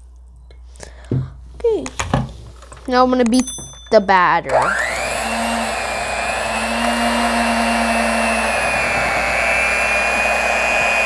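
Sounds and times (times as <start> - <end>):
electric hand mixer whining: 4.5 - 11.0.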